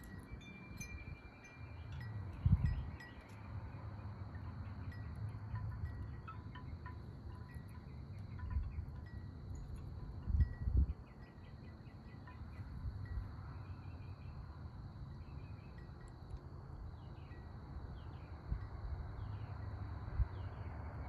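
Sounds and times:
high ringing notes: 0:04.8 - 0:13.5.

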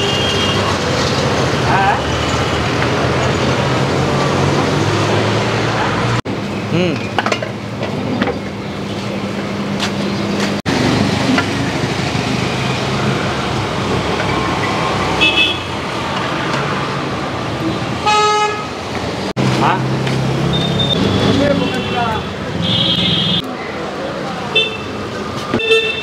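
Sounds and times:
vehicle horn toot: 0:00.0 - 0:00.7, 0:15.2 - 0:15.7, 0:18.0 - 0:18.7, 0:20.6 - 0:23.4, 0:25.6 - 0:26.0
traffic noise: 0:00.0 - 0:26.0
people chatting: 0:06.7 - 0:07.1, 0:21.2 - 0:22.3.

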